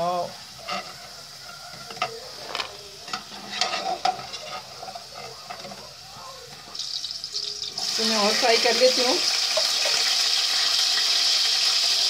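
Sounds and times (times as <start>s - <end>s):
oil sizzling: 0.0s - 12.0s
metal spoon scraping a pot: 0.5s - 5.9s.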